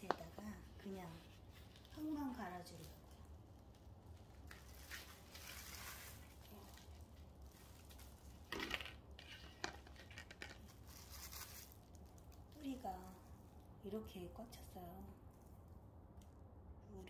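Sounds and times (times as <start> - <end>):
plastic pot scraping and rustling: 4.5 - 11.8.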